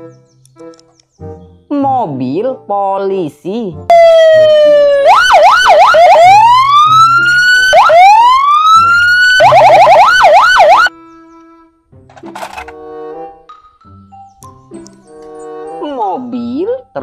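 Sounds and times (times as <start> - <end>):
police siren wailing and yelping: 3.9 - 10.9.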